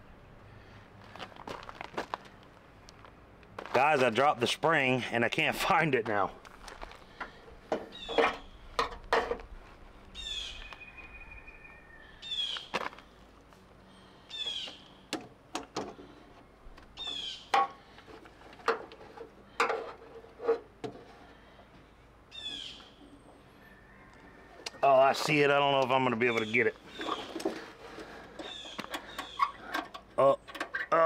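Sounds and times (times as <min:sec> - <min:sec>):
bird calling high downward sweeps: 0:10.2 - 0:12.7.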